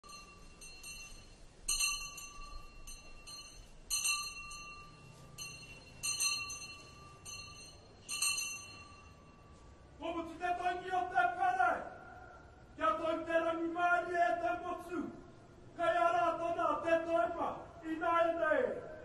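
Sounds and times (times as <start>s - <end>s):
bell ringing: 0.0s - 9.6s.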